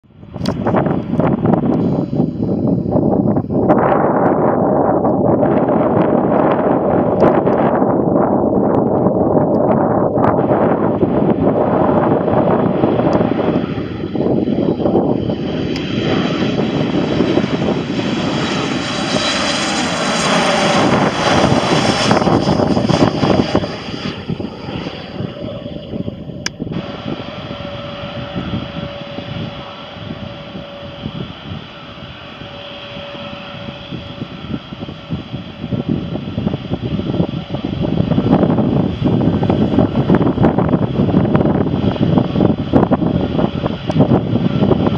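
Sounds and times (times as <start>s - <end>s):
jet engines passing overhead: 0.0s - 44.9s
wind buffeting microphone: 0.0s - 44.9s
click: 0.4s - 0.6s.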